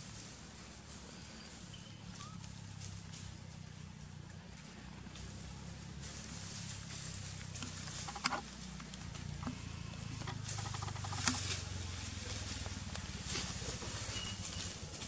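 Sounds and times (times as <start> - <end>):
sharp clicks: 10.2 - 11.4.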